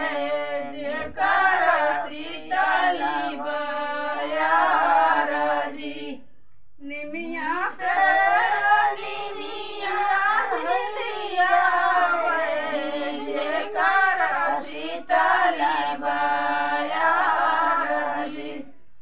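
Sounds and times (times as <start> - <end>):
women singing unaccompanied: 0.0 - 6.2, 6.8 - 18.8.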